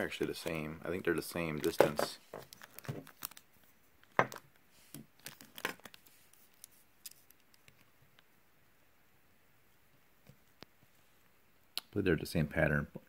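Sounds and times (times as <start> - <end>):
plastic bag crinkling and rustling: 1.6 - 7.8.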